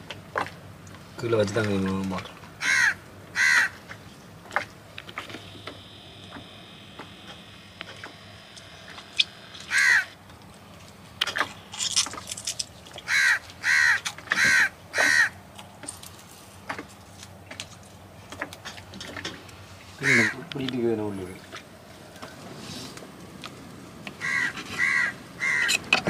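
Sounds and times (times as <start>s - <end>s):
crow cawing: 2.6s - 3.8s, 9.6s - 10.1s, 13.0s - 15.4s, 20.0s - 20.5s, 24.2s - 25.8s.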